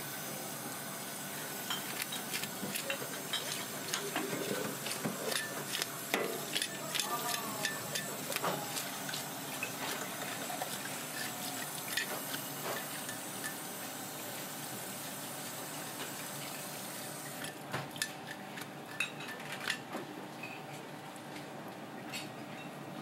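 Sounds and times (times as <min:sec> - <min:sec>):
fish scaler scraping scales: 0:01.6 - 0:13.6.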